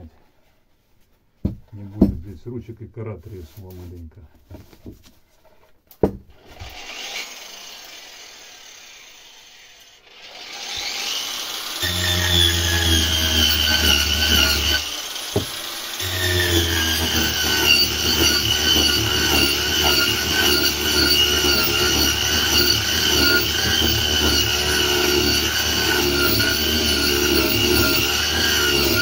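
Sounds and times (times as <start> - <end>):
angle grinder grinding wood: 6.3 - 29.0.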